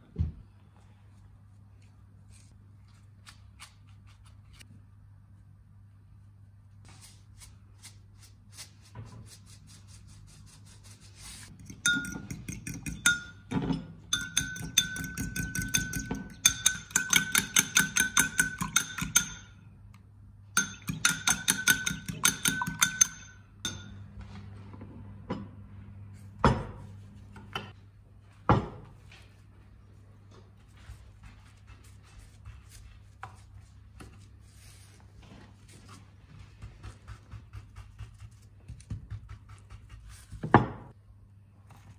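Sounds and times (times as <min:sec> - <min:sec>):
fork clinking against glass: 0:11.6 - 0:13.5, 0:14.1 - 0:19.6, 0:20.6 - 0:24.0.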